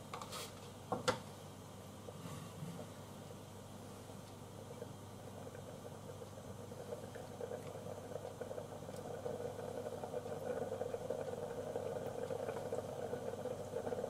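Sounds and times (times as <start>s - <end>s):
soup bubbling in pot: 2.9s - 14.0s.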